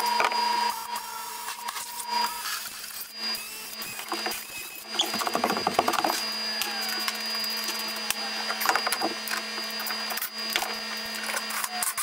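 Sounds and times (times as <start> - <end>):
cordless drill running: 0.0 - 12.0
clicks and knocks of work: 4.0 - 6.2.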